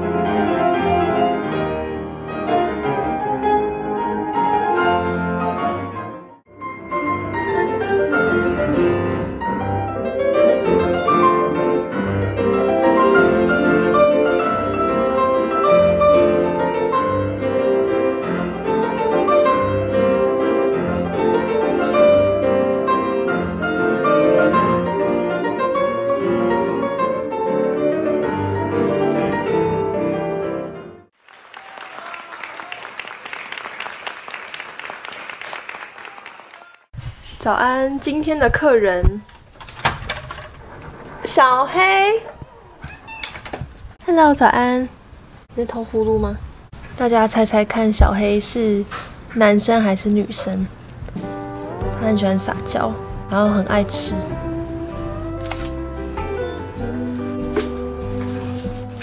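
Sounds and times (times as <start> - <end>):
classical piano duet: 7.0 - 30.9, 49.2 - 59.0
audience applauding: 31.2 - 36.9.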